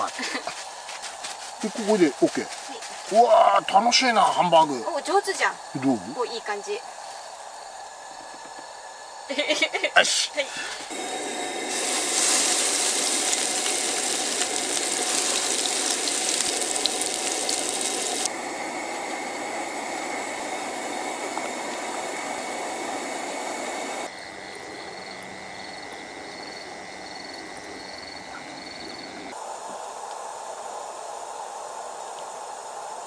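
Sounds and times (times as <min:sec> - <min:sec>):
patty sizzling in a frying pan: 0:10.9 - 0:24.1.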